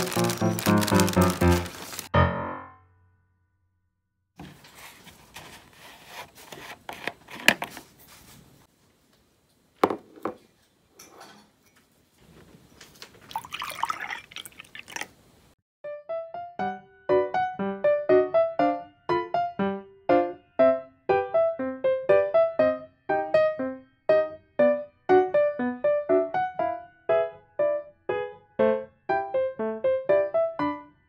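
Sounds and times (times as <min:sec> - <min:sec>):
milk splashing in glass: 0:13.2 - 0:15.2.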